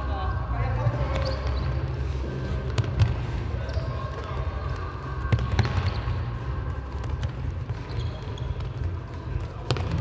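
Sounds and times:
sports shoes squeaking on court: 1.0s - 2.0s, 3.6s - 4.1s, 7.2s - 9.0s.

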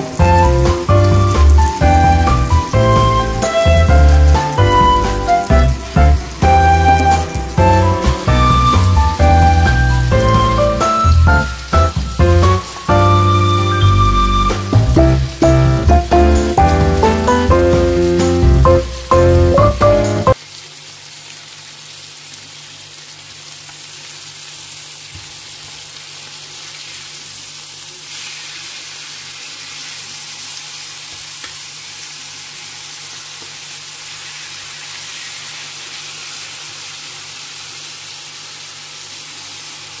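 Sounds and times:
steaks sizzling in a grill pan: 0.0s - 14.4s, 15.0s - 19.5s, 28.0s - 40.0s.

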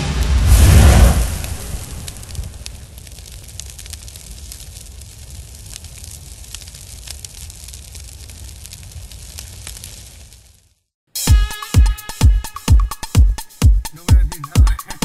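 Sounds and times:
fire rumbling and crackling: 0.0s - 11.0s.

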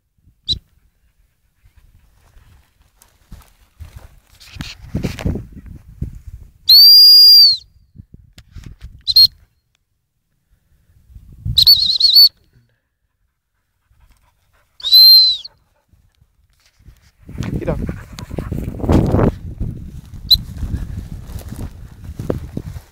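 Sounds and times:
high-pitched whistle blasts: 6.7s - 7.7s, 9.0s - 9.4s, 11.5s - 12.4s, 14.8s - 15.6s.

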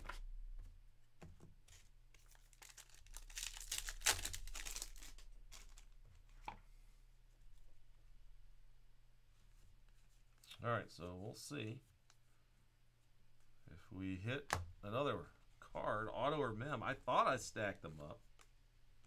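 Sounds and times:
foil wrapper tearing: 2.3s - 5.9s.

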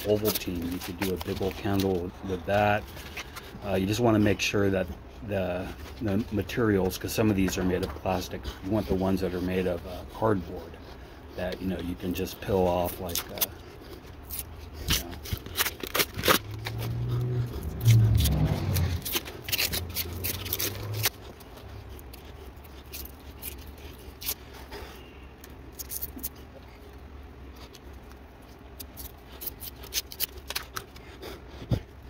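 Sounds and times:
cardboard tearing and crackling: 0.0s - 4.2s, 11.6s - 24.8s, 28.8s - 31.0s.

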